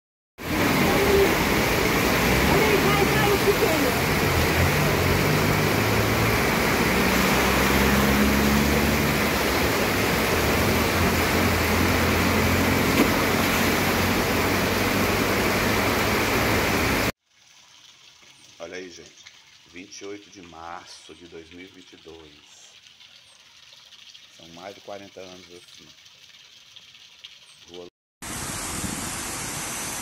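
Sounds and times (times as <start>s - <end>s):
car engines running: 0.4s - 17.1s
cars driving through flood water: 0.4s - 17.1s
heavy rain: 0.4s - 17.1s.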